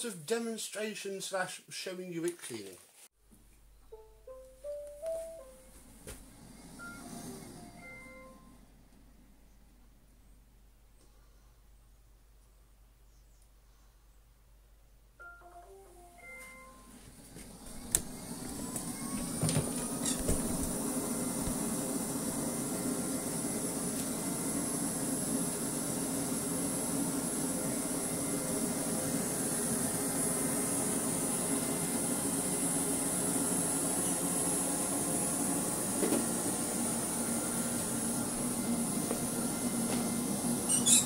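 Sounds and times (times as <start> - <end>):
robot vacuum fan whining: 5.8 - 9.0, 16.2 - 41.0.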